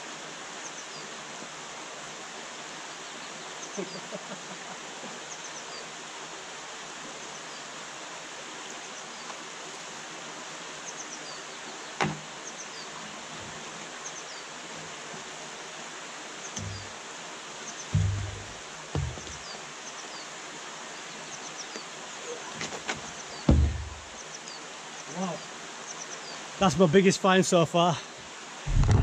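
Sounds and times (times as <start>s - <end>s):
sharp knock: 12.0s - 12.3s, 16.6s - 16.9s, 18.0s - 19.4s, 23.5s - 24.1s
water rushing over weir: 14.6s - 19.7s
birds chirping: 16.4s - 17.0s, 17.7s - 20.3s, 21.0s - 26.4s
low thumps: 16.6s - 16.9s, 17.9s - 19.5s, 23.5s - 24.2s, 28.7s - 29.0s.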